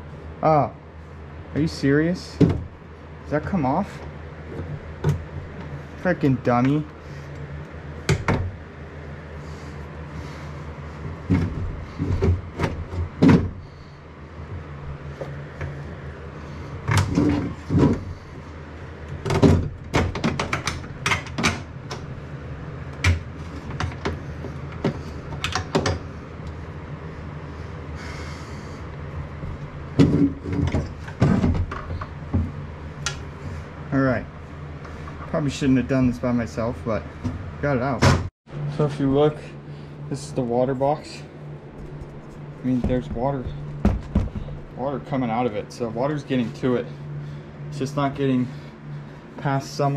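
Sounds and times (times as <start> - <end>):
steady low hum: 0.0 - 49.9
metal engine bumping against hull: 41.8 - 44.8.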